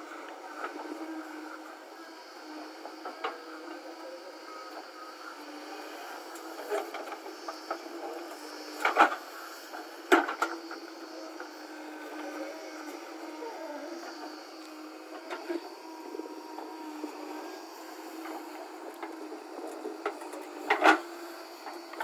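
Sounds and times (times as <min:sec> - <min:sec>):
diesel engine running: 0:05.6 - 0:22.0.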